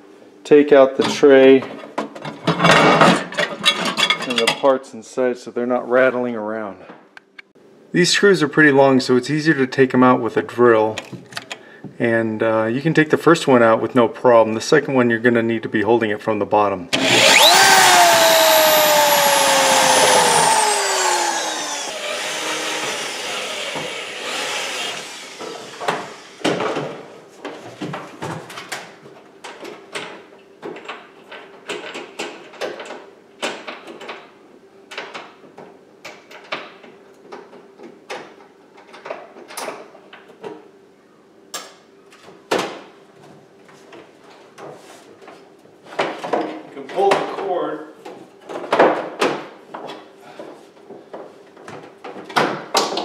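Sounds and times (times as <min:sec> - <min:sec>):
drill motor whining: 0:17.0 - 0:26.5.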